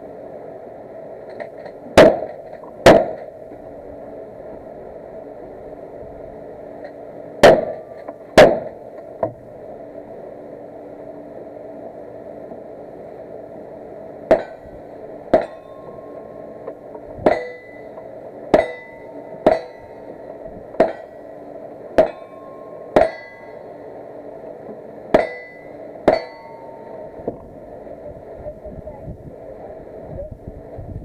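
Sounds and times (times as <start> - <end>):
gunshots: 2.0 - 3.3, 7.4 - 7.8, 8.4 - 8.8
metallic ring of steel targets: 14.3 - 14.7, 15.3 - 16.5, 17.2 - 20.1, 20.8 - 21.3, 22.0 - 23.7, 25.1 - 27.2.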